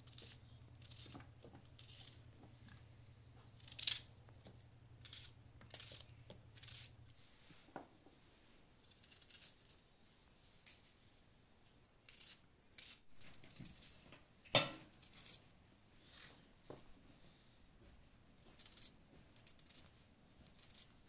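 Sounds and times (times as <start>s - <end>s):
knife slicing onion: 0.0s - 2.3s, 5.0s - 7.2s, 12.0s - 14.0s, 18.5s - 21.0s.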